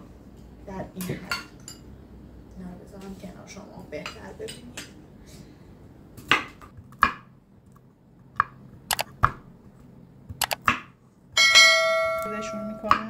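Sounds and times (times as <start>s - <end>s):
knife chopping nuts on wooden board: 6.2s - 7.3s.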